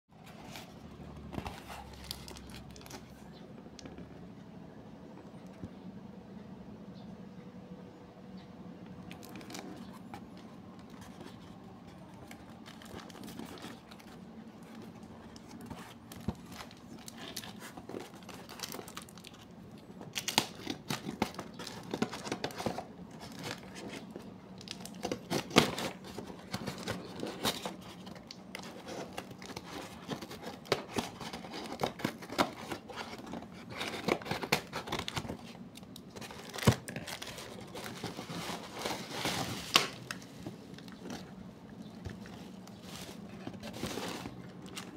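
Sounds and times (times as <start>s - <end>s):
paper and plastic tearing: 9.1s - 41.4s.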